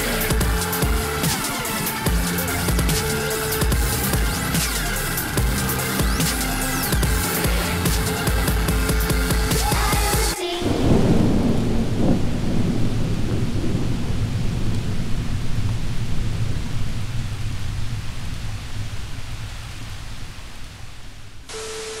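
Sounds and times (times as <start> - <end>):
rain-like hiss: 0.0 - 22.0
thunder booms: 10.6 - 20.3
low thunder rumble: 10.6 - 21.5
steady beep tone: 21.5 - 22.0.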